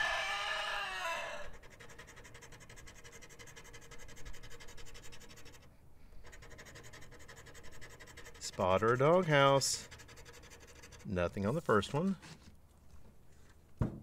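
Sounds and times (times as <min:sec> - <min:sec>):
rooster crowing: 0:00.0 - 0:01.6
lottery ticket being scratched: 0:01.5 - 0:12.4.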